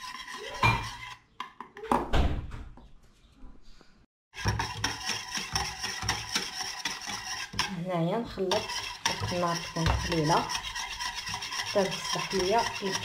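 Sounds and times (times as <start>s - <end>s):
whisk scraping a metal saucepan: 0.0s - 1.6s, 4.3s - 13.0s.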